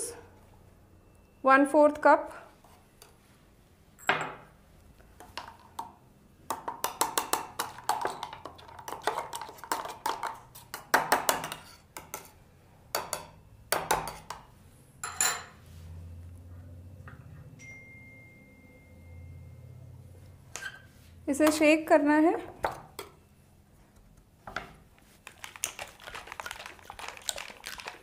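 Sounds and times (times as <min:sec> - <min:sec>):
spoon clinking in metal shaker: 0:25.2 - 0:28.0.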